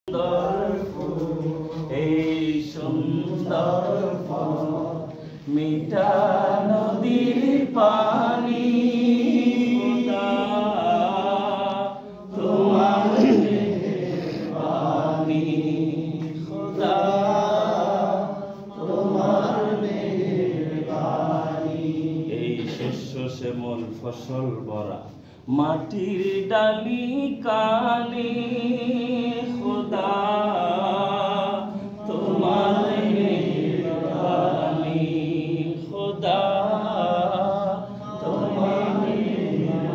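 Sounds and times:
person singing unaccompanied: 0.0 - 24.2.

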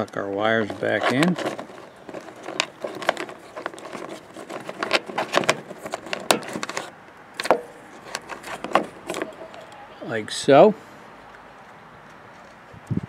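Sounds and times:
wires rustling: 0.0 - 10.3.

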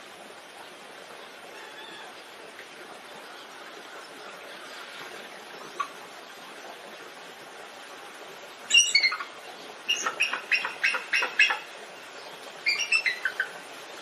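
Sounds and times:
steady hiss: 0.0 - 14.0
eagle chattering calls: 9.9 - 11.6.

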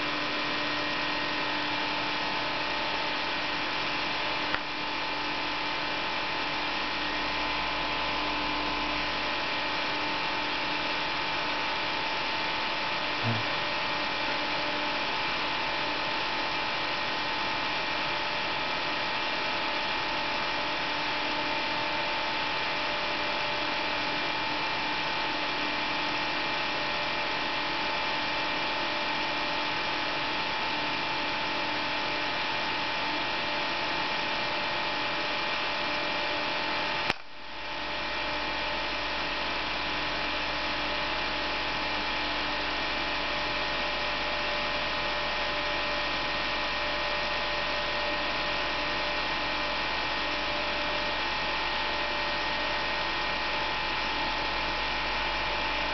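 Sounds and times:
low electrical hum: 0.0 - 16.4
cooling fan whirring: 9.2 - 22.7.

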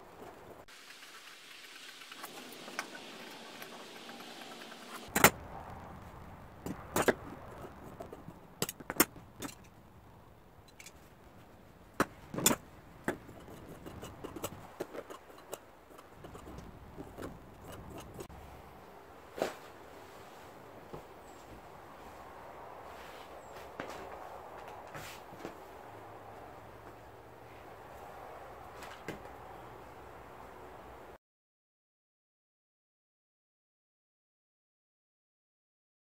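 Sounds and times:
shears cutting vinyl: 1.0 - 5.4, 12.0 - 18.3.

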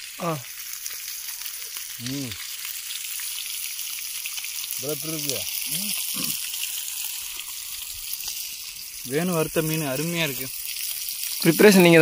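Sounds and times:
fish sizzling in hot oil: 0.0 - 12.0
short voice sounds: 5.7 - 6.4.

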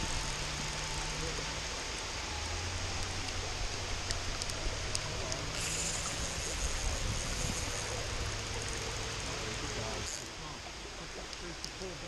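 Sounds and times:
river water rushing: 0.0 - 12.0
faint clicks: 4.0 - 6.2, 11.2 - 11.9.

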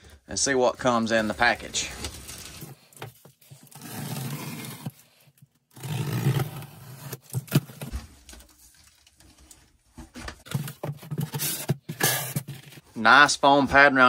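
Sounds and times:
tape tearing from cardboard box: 3.6 - 7.9, 10.5 - 12.7.

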